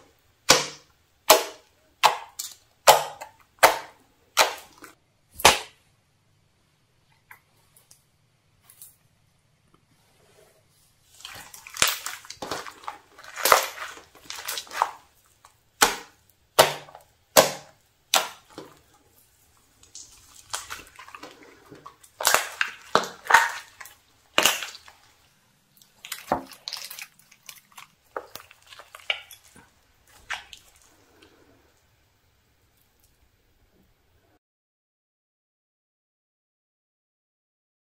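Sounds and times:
slime popping and crackling: 11.1s - 18.9s, 19.6s - 31.0s.

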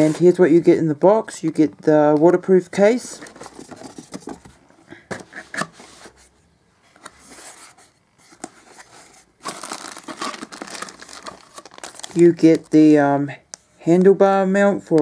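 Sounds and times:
plastic crinkling: 9.4s - 12.8s.

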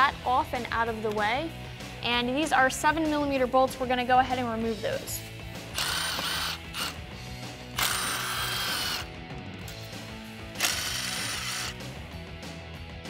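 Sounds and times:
background music: 0.0s - 13.0s
power ratchet spinning: 5.7s - 9.2s, 10.5s - 11.9s.

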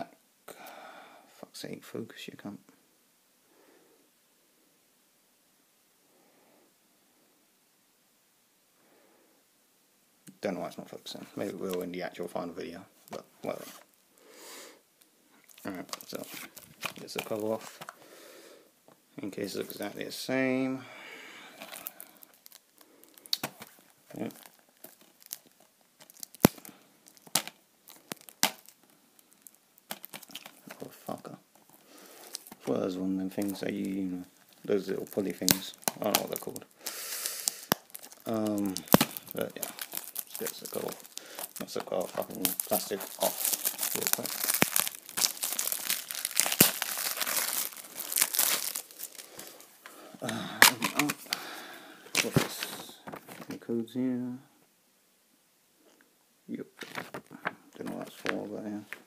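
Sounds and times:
plastic wrap tearing and crackling: 15.5s - 18.0s, 21.6s - 32.7s, 33.3s - 51.4s, 52.1s - 53.6s, 56.8s - 59.0s.

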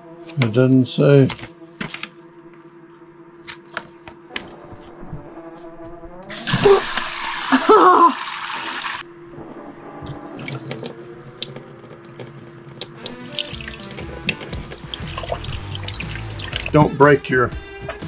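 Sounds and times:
water rushing from faucet: 6.3s - 9.0s, 10.1s - 16.7s.

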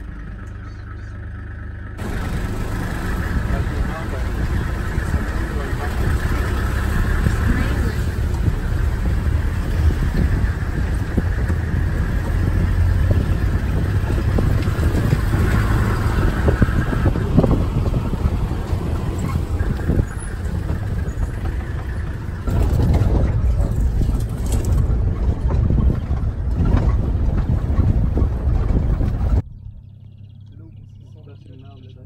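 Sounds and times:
vehicle engine and road rumble: 0.0s - 32.0s
knocks and rattles: 2.0s - 29.4s.

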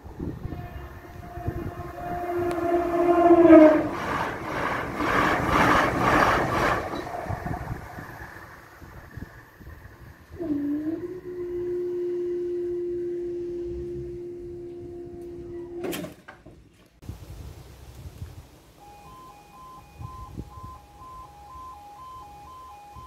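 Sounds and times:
barrier motor whining: 0.0s - 16.0s
two-tone yodel alarm: 0.2s - 4.0s, 10.4s - 15.8s, 18.8s - 23.0s
barrier clunk: 15.6s - 16.7s.

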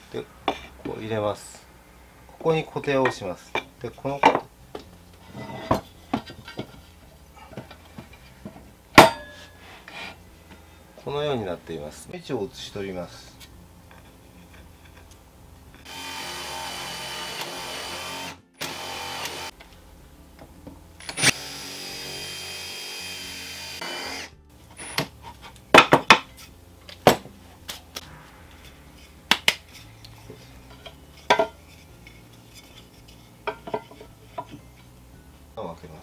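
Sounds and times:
cordless drill boring wood: 15.8s - 19.5s, 21.2s - 24.3s.

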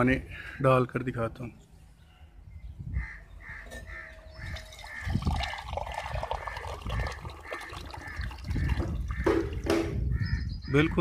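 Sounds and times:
water pouring into a steel tumbler: 4.5s - 8.9s.

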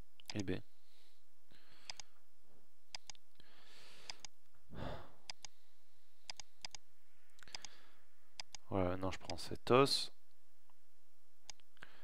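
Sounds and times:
computer mouse clicks: 0.2s - 0.4s, 1.8s - 2.1s, 2.9s - 3.2s, 4.0s - 4.4s, 5.2s - 5.6s, 6.2s - 6.8s, 7.4s - 7.8s, 8.4s - 9.4s, 11.5s - 11.7s.

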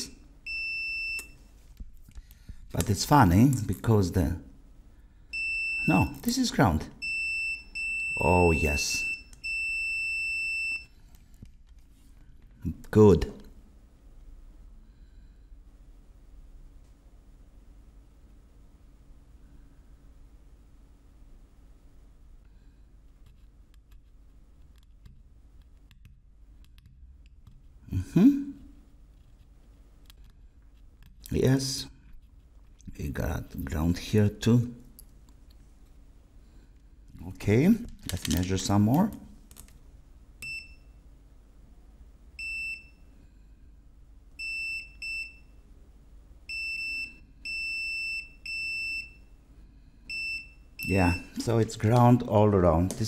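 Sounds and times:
multimeter high beeps: 0.0s - 1.4s, 5.3s - 6.2s, 7.0s - 10.9s, 40.4s - 41.0s, 42.4s - 43.1s, 44.4s - 45.6s, 46.5s - 49.3s, 50.1s - 51.5s.

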